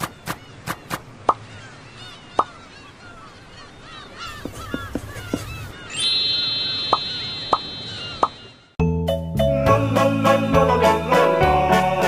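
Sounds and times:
birds squawking: 0.0 - 8.8.

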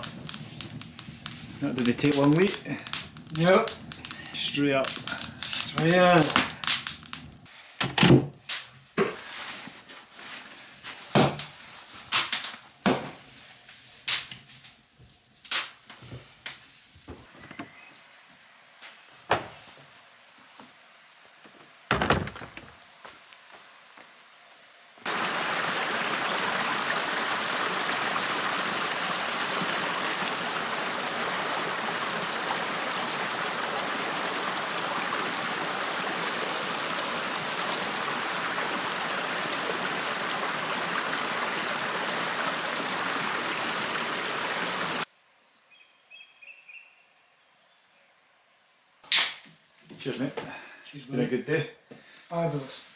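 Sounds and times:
stream running over rocks: 0.0 - 7.4, 25.0 - 45.1
wooden door thunk: 21.9 - 22.8.

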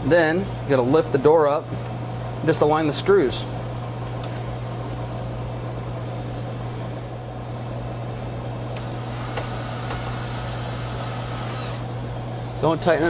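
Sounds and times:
machine hum with low drone: 0.0 - 13.0.

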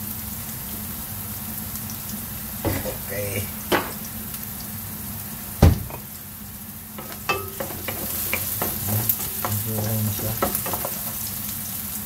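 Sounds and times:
onion sizzling in hot oil: 0.0 - 12.0
spatula scraping a pan: 7.0 - 11.5.

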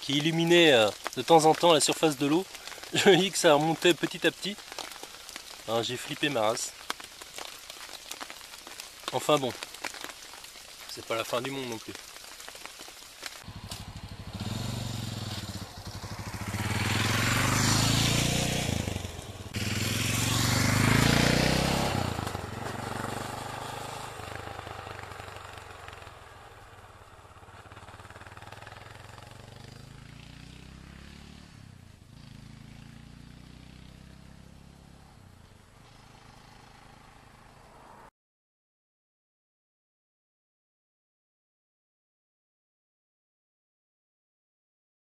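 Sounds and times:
motorcycle engine accelerating: 13.4 - 38.0.

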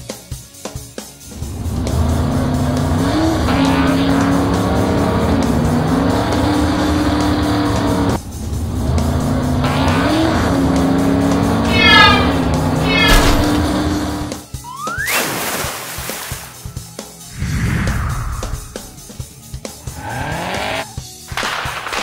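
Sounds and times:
race car engine revving: 1.3 - 14.4, 17.7 - 21.2.

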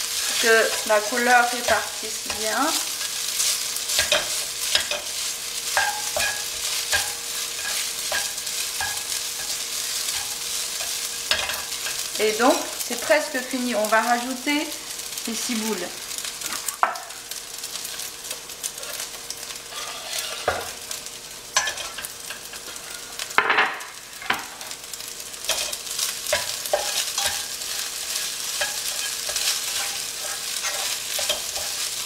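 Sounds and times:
rice sizzling in a pan: 0.0 - 32.0
spatula scraping and tapping pan: 0.2 - 12.1, 17.9 - 21.0, 21.6 - 24.5, 25.4 - 32.0.

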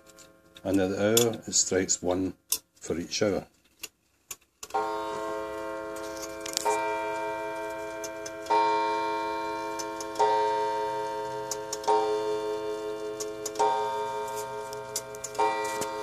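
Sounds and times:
faint clock ticking: 4.7 - 16.0
clock striking on wire gong: 4.8 - 16.0.

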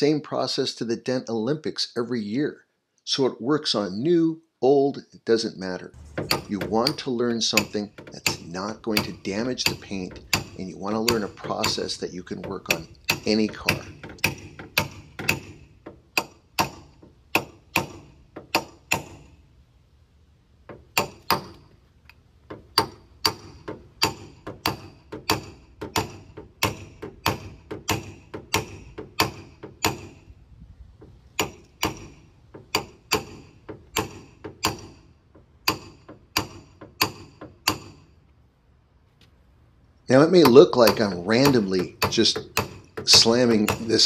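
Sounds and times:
metallic taps on steel panel: 6.0 - 19.3, 22.5 - 30.2, 31.0 - 38.0, 40.4 - 44.0.

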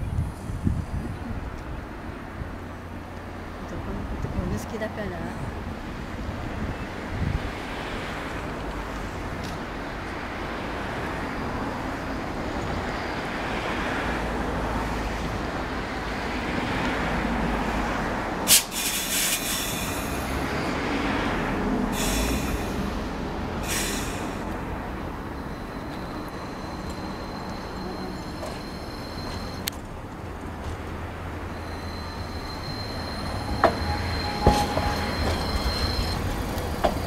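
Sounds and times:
tram wheels rumbling on track: 0.0 - 37.0
high-pitched wheel squeals: 25.2 - 29.7, 31.5 - 37.0.

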